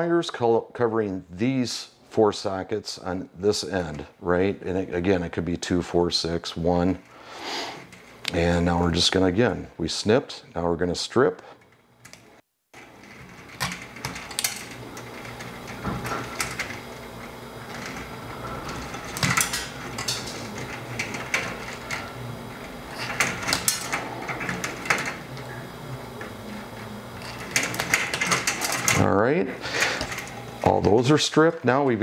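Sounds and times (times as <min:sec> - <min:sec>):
wires rustling: 0:03.5 - 0:10.6, 0:11.4 - 0:32.0
wire stripper clicking: 0:12.0 - 0:29.1.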